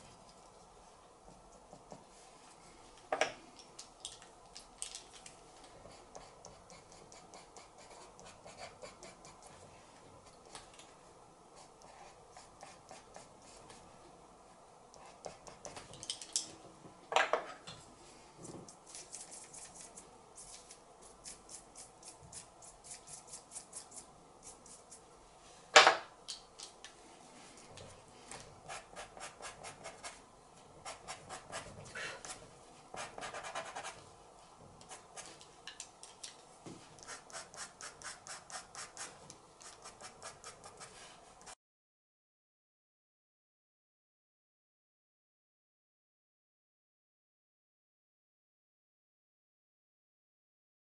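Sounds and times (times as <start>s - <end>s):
charcoal pencil scratching on paper: 5.8s - 9.7s, 11.6s - 13.9s, 15.0s - 15.9s, 18.9s - 25.0s, 28.7s - 30.2s, 30.8s - 31.7s, 32.3s - 34.0s, 37.0s - 41.6s.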